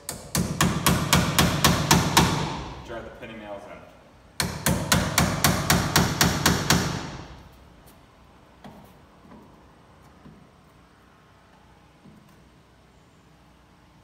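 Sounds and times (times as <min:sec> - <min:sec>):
hammer striking nails: 0:00.0 - 0:02.8, 0:04.4 - 0:07.4.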